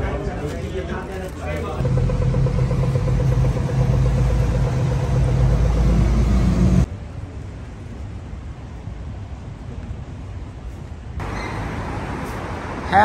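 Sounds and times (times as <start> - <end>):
vehicle engine running: 1.8 - 6.9.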